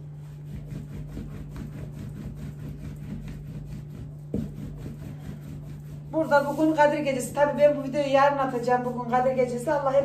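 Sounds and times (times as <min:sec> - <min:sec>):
rolling pin rubbing dough: 0:00.0 - 0:10.0.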